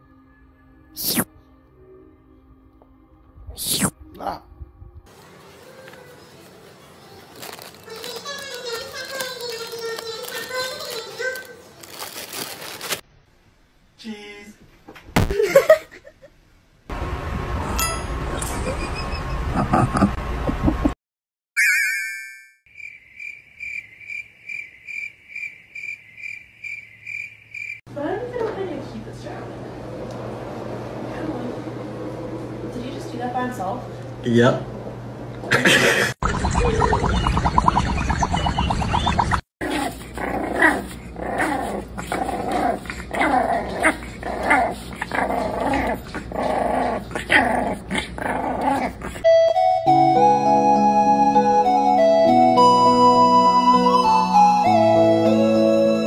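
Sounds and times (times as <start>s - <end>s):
short warbling tone: 21.6s - 22.6s, 36.2s - 39.4s
insect-like chirping trill: 22.7s - 27.8s
puppies growling and yapping: 39.0s - 49.3s.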